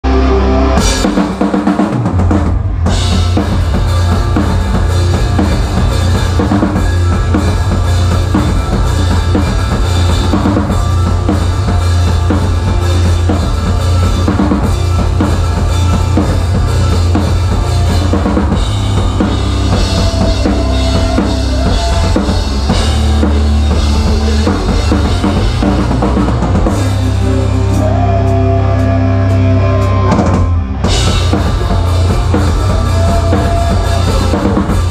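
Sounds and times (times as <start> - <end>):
rock band playing live: 0.0 - 34.9.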